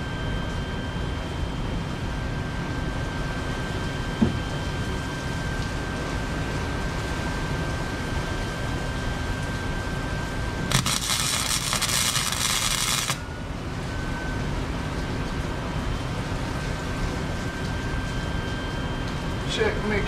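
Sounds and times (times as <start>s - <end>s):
steady background noise: 0.0s - 20.0s
crackling welding arc buzz: 10.7s - 13.3s.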